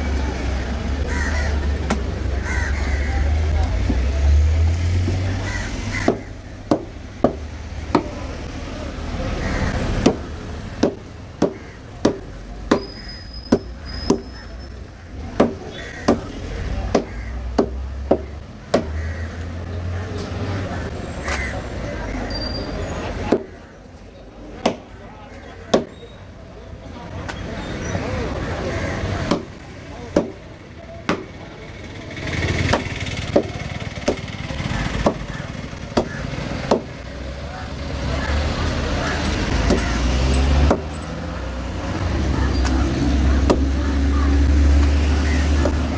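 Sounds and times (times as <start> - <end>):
knife chopping fish on wood: 6.0 - 8.2, 10.0 - 12.9, 16.9 - 19.0, 34.9 - 36.9.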